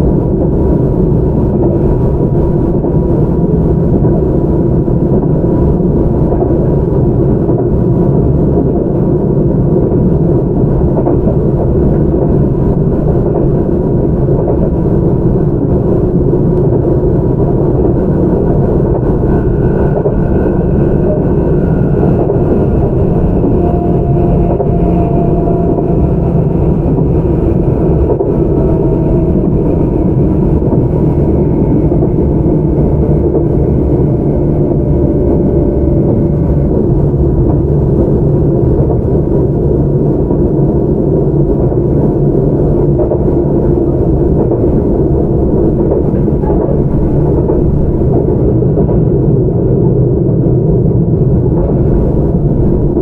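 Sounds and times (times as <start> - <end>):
train wheels rumbling on rail: 0.0 - 53.0
faint whining tones: 17.7 - 38.7.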